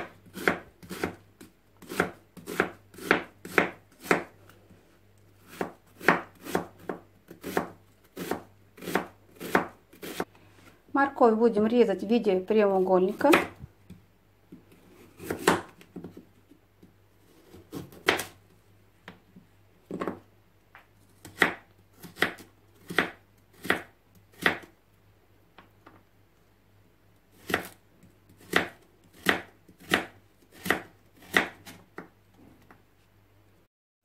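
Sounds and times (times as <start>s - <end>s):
knife chopping on wooden board: 0.0s - 1.2s, 1.8s - 4.3s, 5.5s - 10.3s, 13.3s - 13.5s, 15.2s - 16.2s, 21.2s - 24.7s, 28.4s - 32.1s.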